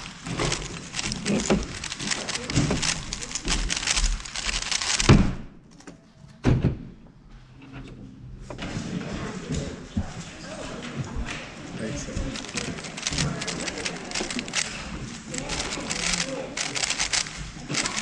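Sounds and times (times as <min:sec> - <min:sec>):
puzzle cube clicking: 0:00.0 - 0:05.1, 0:12.3 - 0:18.0.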